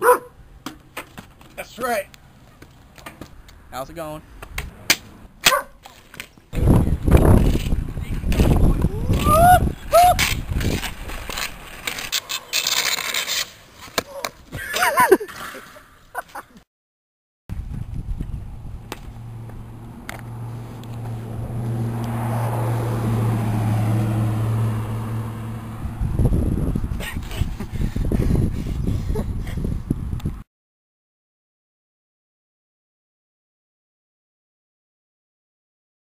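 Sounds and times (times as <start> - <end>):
skis scraping on asphalt: 5.8 - 15.8
person shouting: 8.8 - 10.2.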